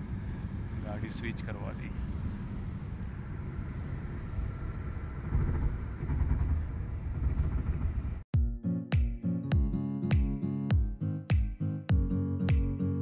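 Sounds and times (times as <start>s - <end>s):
car road and engine rumble: 0.0s - 8.3s
music with plucked notes: 8.4s - 13.0s.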